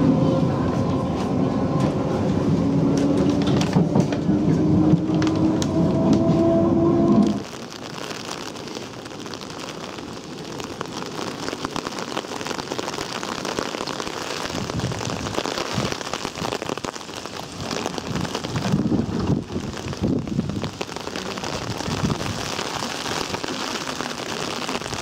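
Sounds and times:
hail pattering: 1.8 - 6.4, 7.0 - 25.0
wind gusts on microphone: 14.5 - 23.4.

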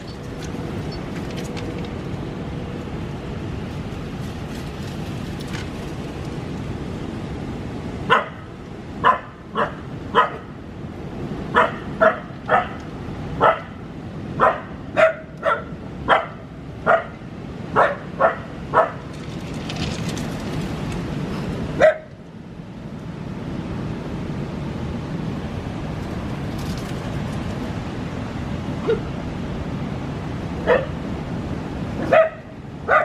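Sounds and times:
dog barking: 8.1 - 8.4, 9.0 - 10.5, 11.5 - 12.8, 13.4 - 13.7, 14.4 - 17.2, 17.8 - 19.0, 21.8 - 22.1, 30.6 - 31.0, 32.0 - 33.0.

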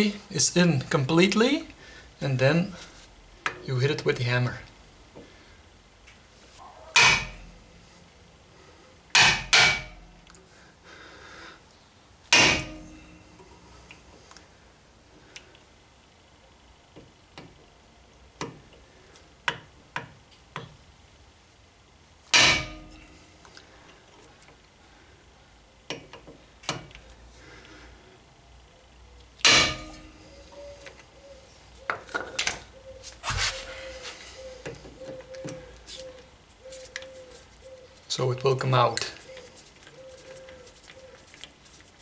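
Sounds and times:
hammer striking metal impact driver: 7.0 - 7.6, 9.2 - 10.0, 12.3 - 13.2, 22.4 - 23.1, 29.4 - 30.2.

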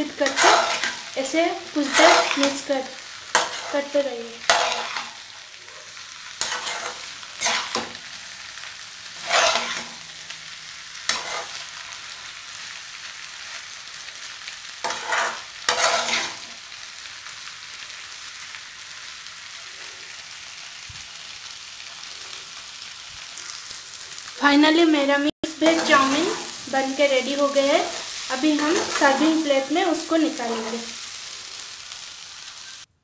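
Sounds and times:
food sizzling in a frying pan: 0.0 - 33.0
metal spatula scraping pan: 0.1 - 2.7, 3.3 - 5.2, 6.4 - 8.1, 9.2 - 10.0, 11.1 - 12.0, 14.8 - 16.5, 25.6 - 29.7.

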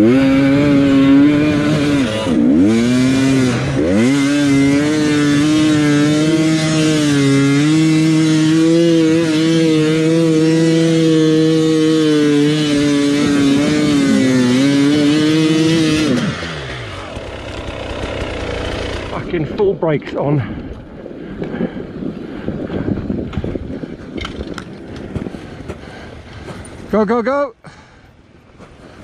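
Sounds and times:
dirt bike engine revving: 0.0 - 20.6.

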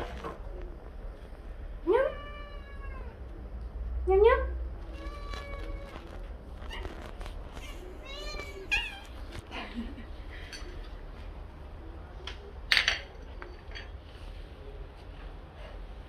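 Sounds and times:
cats meowing: 1.9 - 3.4, 4.8 - 9.4.

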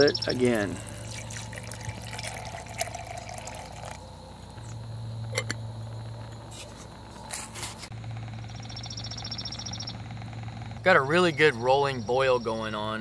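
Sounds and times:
water pouring into metal pot: 0.5 - 4.0.

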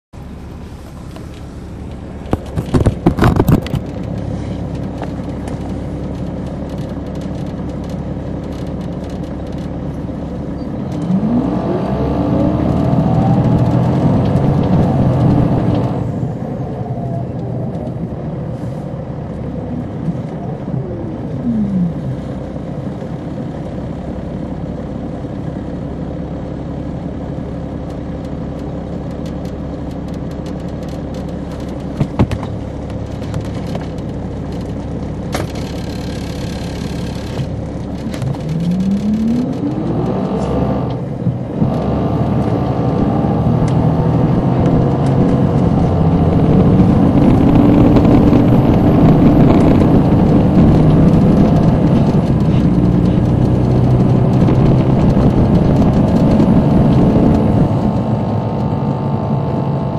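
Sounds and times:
diesel engine running: 0.2 - 59.9
falling whine: 35.4 - 59.9.

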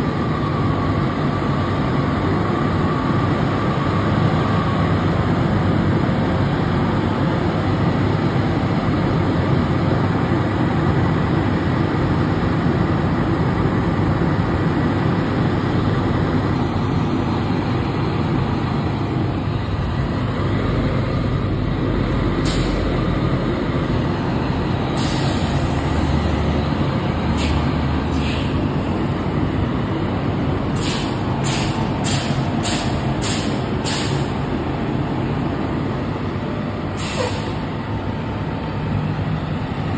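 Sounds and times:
diesel engines idling: 0.0 - 39.9
air release hisses: 22.4 - 22.8, 25.0 - 25.8, 27.3 - 28.6, 30.8 - 34.4, 37.0 - 37.6.

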